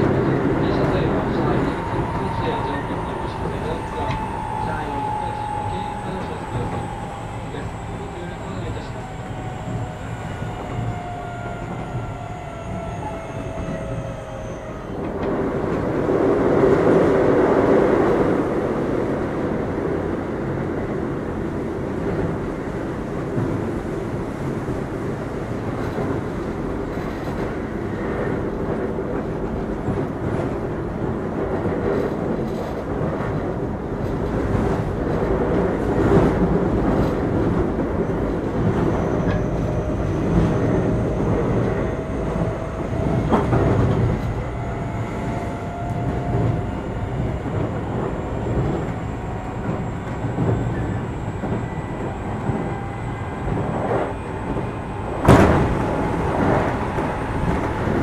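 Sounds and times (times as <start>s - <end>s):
train wheel and rail noise: 0.0s - 58.0s
rail-joint clatter: 25.7s - 30.4s.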